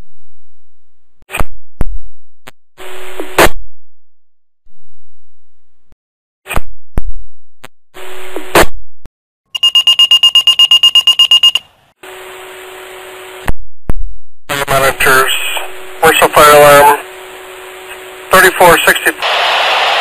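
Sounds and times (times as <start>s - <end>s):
rapid high-pitched pager beeping: 9.5s - 11.7s
radio static bursts: 14.5s - 17.0s, 17.9s - 20.0s.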